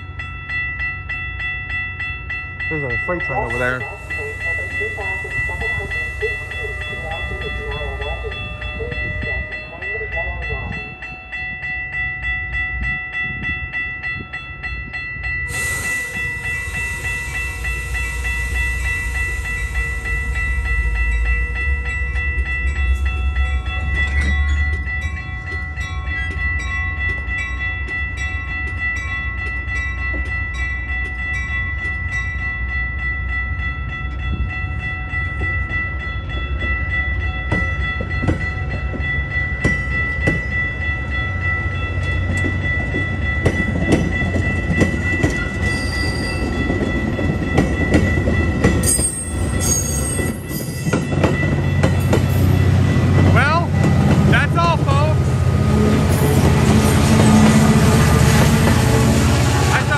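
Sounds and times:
crossing warning bell ringing: 0.0 - 59.9
train wheels rumbling on rail: 0.0 - 59.9
train hiss: 3.4 - 8.4, 15.5 - 20.6.

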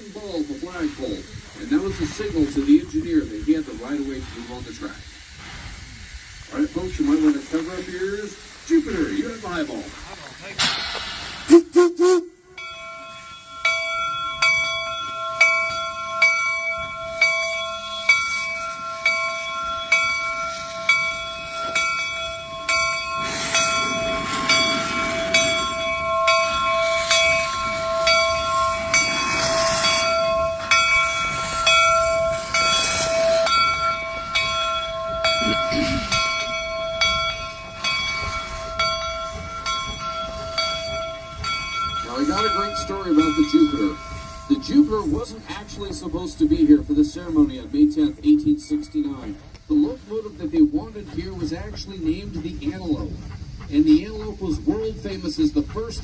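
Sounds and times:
steam hissing: 0.0 - 56.0
locomotive bell ringing: 12.0 - 56.0.

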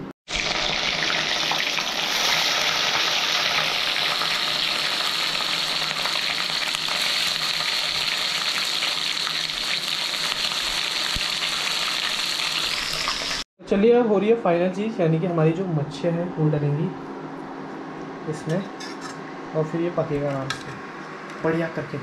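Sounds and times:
food sizzling in hot oil: 0.3 - 13.5.

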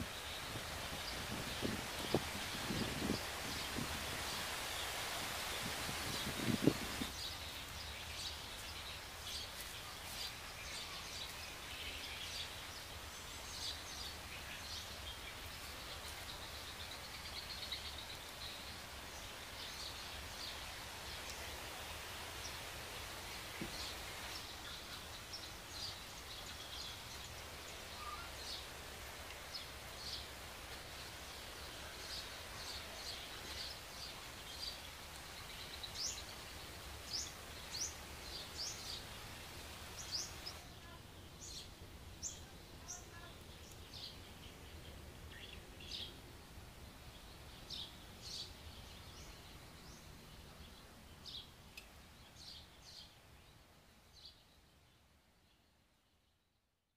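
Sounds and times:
birds chirping: 0.0 - 28.7, 29.4 - 46.2
steady background hiss: 0.0 - 56.9.

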